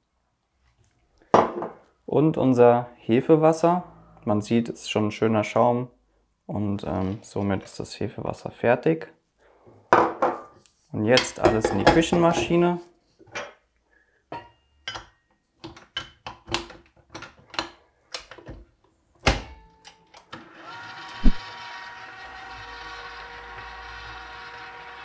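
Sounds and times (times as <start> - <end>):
stand mixer motor whine: 20.4 - 25.0.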